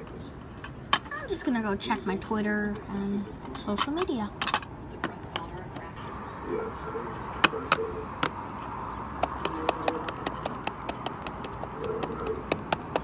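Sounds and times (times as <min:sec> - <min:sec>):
plastic toy tapping cardboard: 0:09.2 - 0:13.0.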